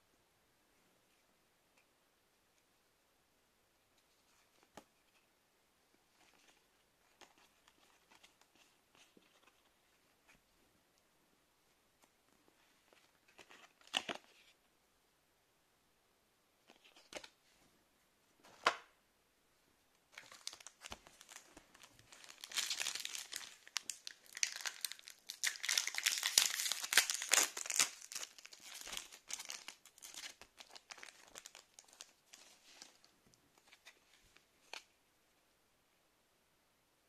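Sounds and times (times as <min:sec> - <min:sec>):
plastic wrapper crinkling and tearing: 0:20.1 - 0:34.9.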